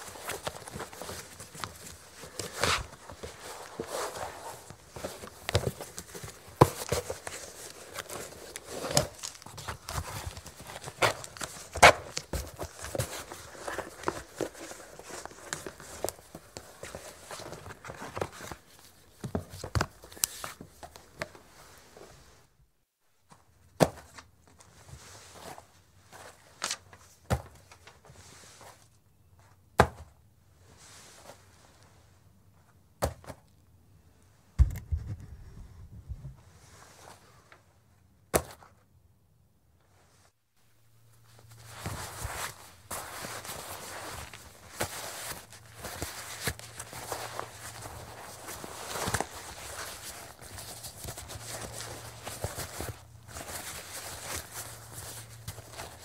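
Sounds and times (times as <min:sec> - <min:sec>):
leather rustling: 0:00.0 - 0:18.9, 0:41.1 - 0:56.0.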